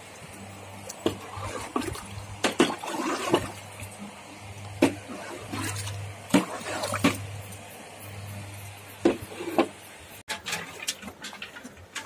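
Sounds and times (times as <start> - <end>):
wet feed sloshing: 0.2 - 7.8.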